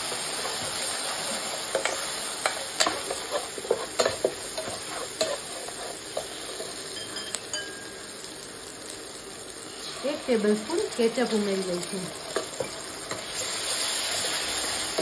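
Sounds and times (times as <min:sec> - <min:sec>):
vegetables sizzling in hot oil: 0:00.0 - 0:15.0
metal spatula scraping a pan: 0:00.2 - 0:07.4.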